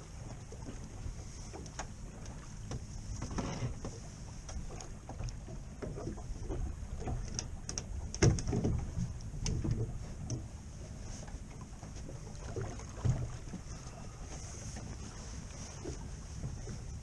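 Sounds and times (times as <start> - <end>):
wind and sea rumble: 0.0 - 17.0.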